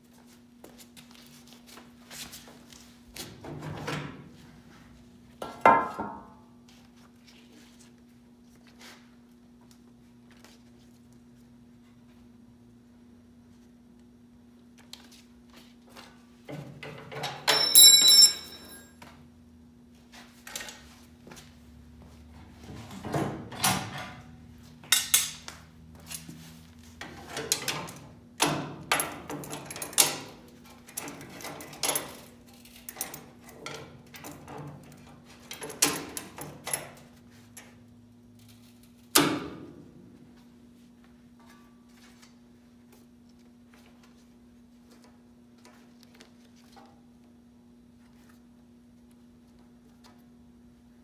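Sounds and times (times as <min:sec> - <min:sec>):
short metallic ring: 0:17.5 - 0:18.9.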